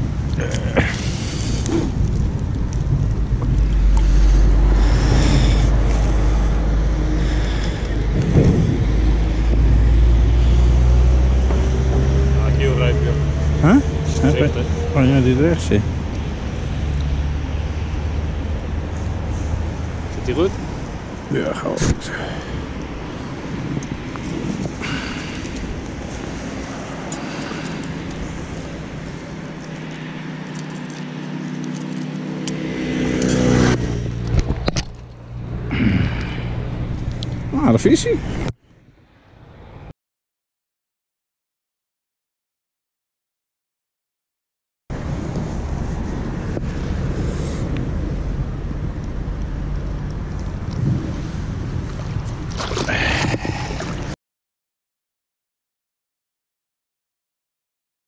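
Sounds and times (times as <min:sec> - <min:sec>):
wind buffeting microphone: 0:00.0 - 0:10.6, 0:18.2 - 0:30.5, 0:44.9 - 0:54.2
steady rumble: 0:00.0 - 0:38.6
vehicle engine hum: 0:00.0 - 0:39.9, 0:44.9 - 0:54.2.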